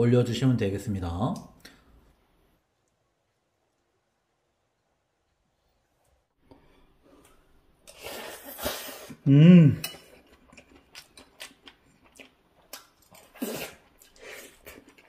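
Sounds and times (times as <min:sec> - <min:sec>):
person's short voiced sound: 0:09.2 - 0:09.8.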